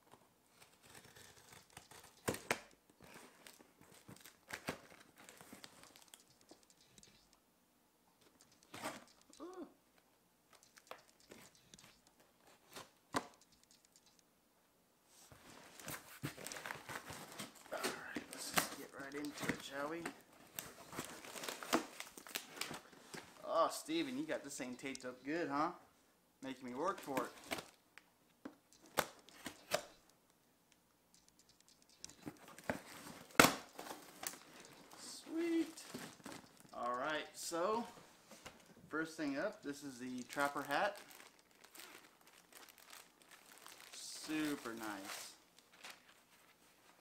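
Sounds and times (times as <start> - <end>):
knife cutting packing tape: 0.6 - 2.7
small clicks: 5.6 - 7.4, 8.2 - 9.5, 10.5 - 12.2, 13.2 - 14.3, 28.6 - 32.5.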